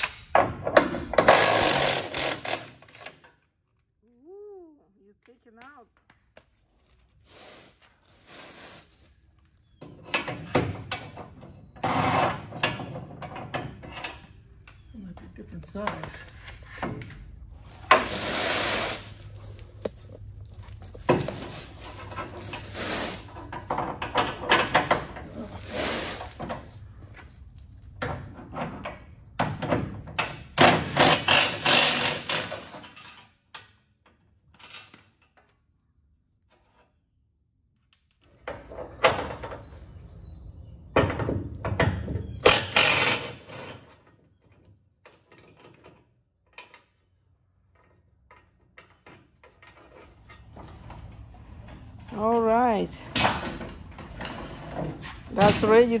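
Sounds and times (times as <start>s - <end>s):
knocks and thunks of parts: 0.0s - 3.4s, 23.4s - 25.3s, 27.9s - 35.5s, 40.9s - 46.9s, 53.0s - 56.0s.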